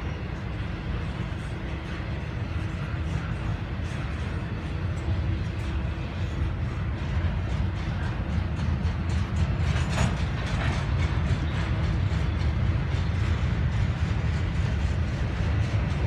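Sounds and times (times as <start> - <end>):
train wheels rumbling on rail: 0.0 - 16.0
wheels clacking over track: 5.0 - 16.0.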